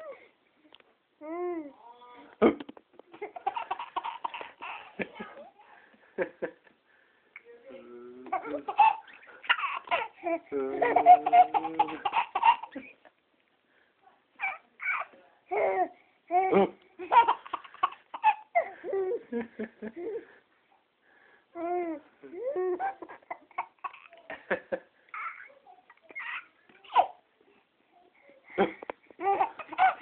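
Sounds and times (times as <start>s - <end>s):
baby laughing and babbling: 3.1s - 5.6s, 8.2s - 12.8s, 14.4s - 19.2s, 21.6s - 24.4s, 25.1s - 27.2s, 28.1s - 30.0s.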